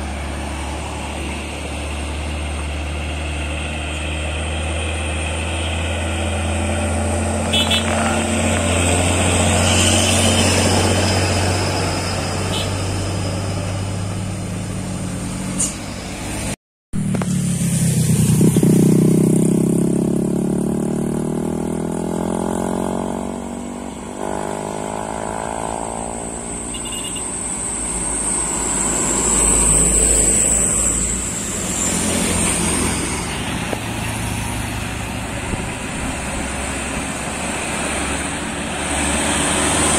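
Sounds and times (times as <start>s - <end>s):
motorcycle passing: 0.0s - 15.5s, 16.1s - 39.9s
diesel truck engine labouring: 0.0s - 16.6s, 26.3s - 39.9s.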